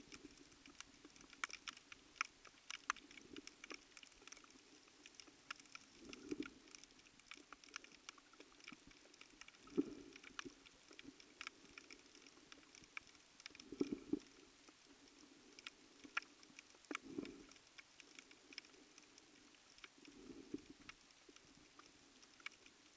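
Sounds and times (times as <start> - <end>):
underwater clicks and crackles: 0.0 - 22.9.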